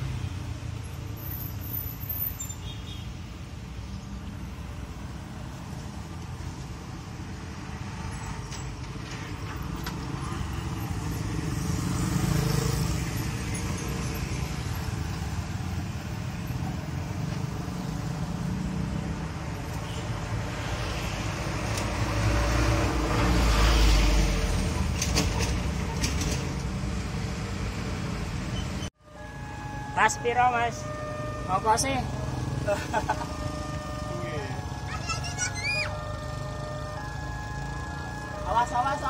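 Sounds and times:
motorcycles passing: 9.4s - 28.5s, 29.1s - 39.0s.

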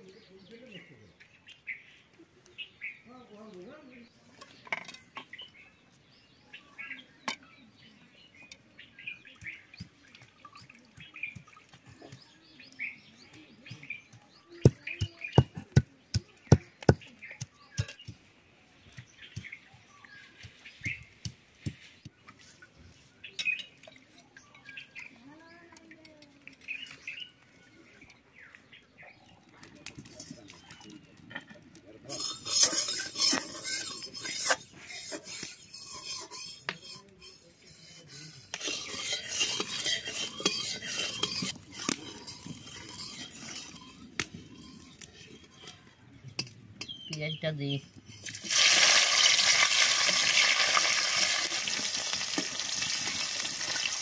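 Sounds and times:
birds chirping: 0.0s - 48.4s
metal spatula scraping steel pan: 32.0s - 47.0s, 48.0s - 53.5s.

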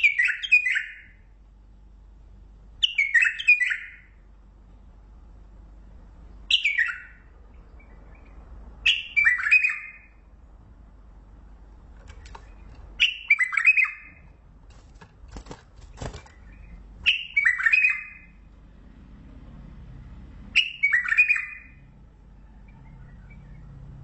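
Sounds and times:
bird singing: 0.0s - 1.3s, 2.8s - 4.2s, 6.4s - 10.4s, 12.1s - 14.4s, 15.8s - 18.5s, 20.5s - 24.0s
faint clicks: 11.9s - 12.9s.

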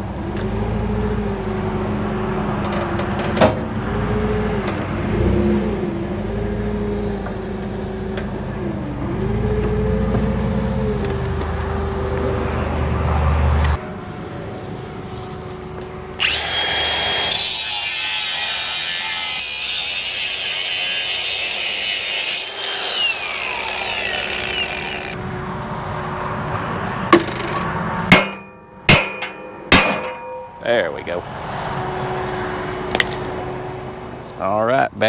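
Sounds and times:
forklift engine running: 0.0s - 13.0s
sharp metal clanks ringing: 28.1s - 30.8s.

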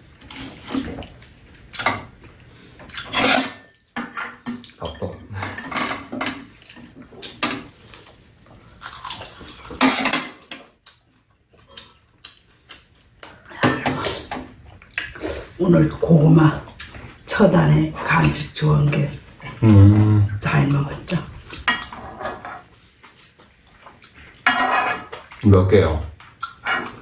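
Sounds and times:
utensils clinking against bowls: 2.9s - 7.7s.

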